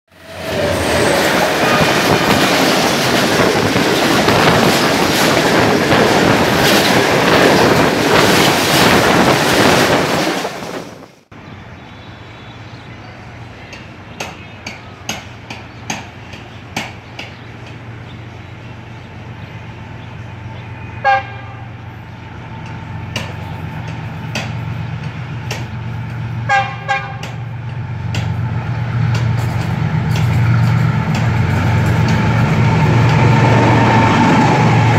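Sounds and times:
loud rushing noise: 0.1s - 11.3s
diesel locomotive engine: 0.1s - 34.9s
locomotive horn toots: 21.0s - 21.8s, 26.4s - 27.5s.

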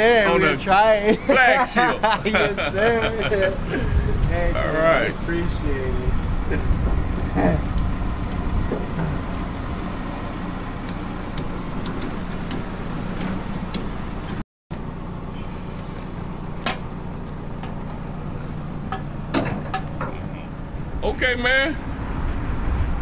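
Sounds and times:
vehicle engine idling: 0.0s - 23.0s.

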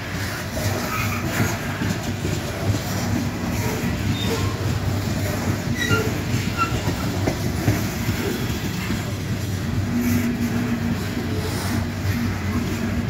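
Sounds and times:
train wheels rumbling on rails: 0.0s - 13.0s
high wheel squeaks: 5.7s - 7.3s.

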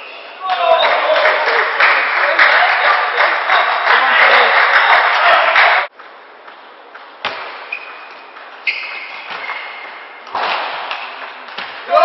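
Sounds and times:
applause: 0.8s - 5.9s.

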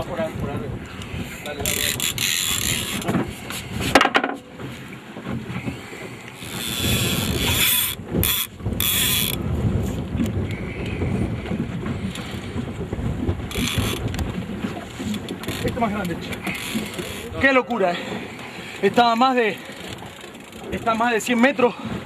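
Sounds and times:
low boat rumble: 0.0s - 22.0s
wind: 0.0s - 22.0s
fishing reel buzzing: 1.6s - 3.1s, 6.4s - 9.4s, 13.5s - 14.0s, 16.4s - 17.3s.

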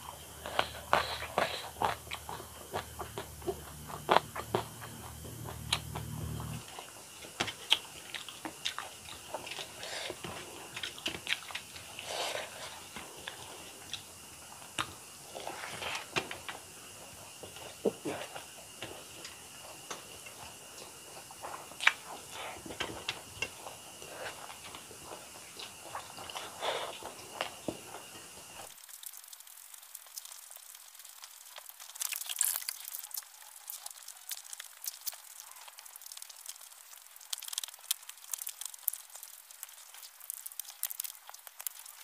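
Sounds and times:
chewing rice: 0.0s - 42.0s.

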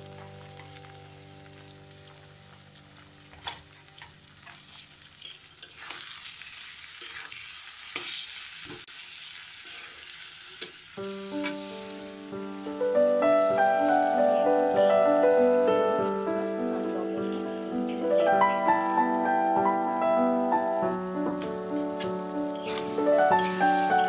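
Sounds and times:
background music: 0.0s - 4.0s, 11.0s - 24.0s
food sizzling in oil: 0.0s - 24.0s
metal spatula scraping a wok: 3.3s - 8.8s, 9.6s - 10.8s, 22.5s - 24.0s.

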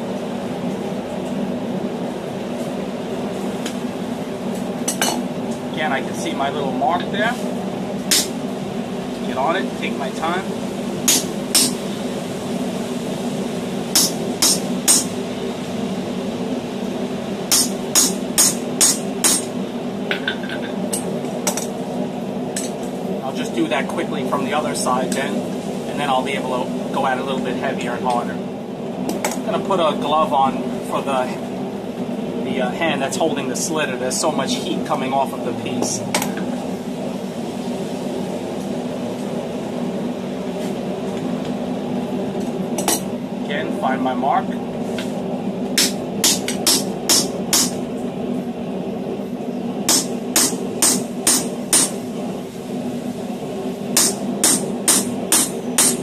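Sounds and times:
low hum: 0.0s - 56.0s
hammer tapping on metal: 11.1s - 11.8s, 17.5s - 19.5s, 49.9s - 51.9s.

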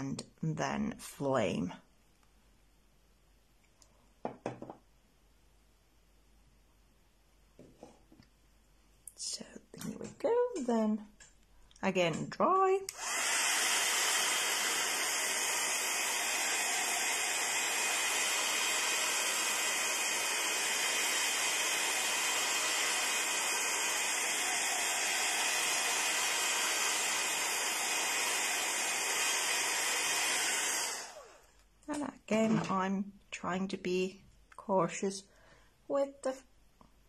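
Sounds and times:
heat tool blowing: 12.9s - 31.6s.

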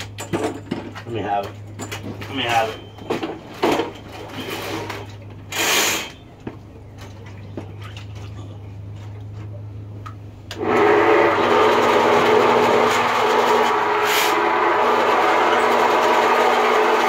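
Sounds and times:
sewer machine running: 10.5s - 17.0s.

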